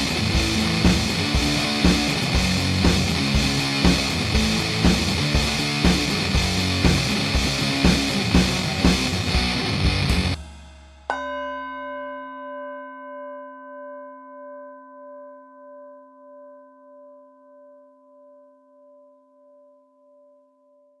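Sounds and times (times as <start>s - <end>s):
rock music: 0.0s - 10.9s
struck bell ringing: 10.4s - 18.0s.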